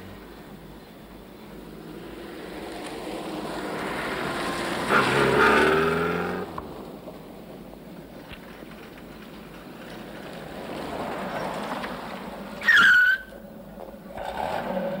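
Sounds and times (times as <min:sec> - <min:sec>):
car road noise: 0:00.0 - 0:15.0
high squeal bending down in pitch: 0:12.6 - 0:13.4.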